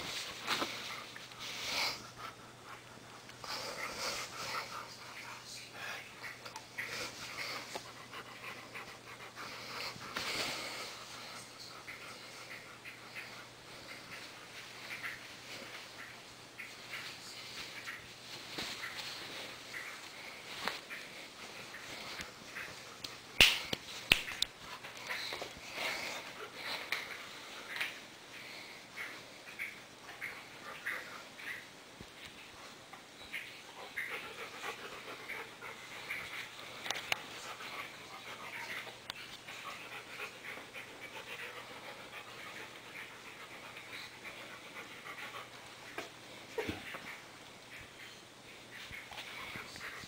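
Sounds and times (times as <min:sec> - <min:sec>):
dog panting: 0:00.1 - 0:16.2, 0:33.7 - 0:47.2.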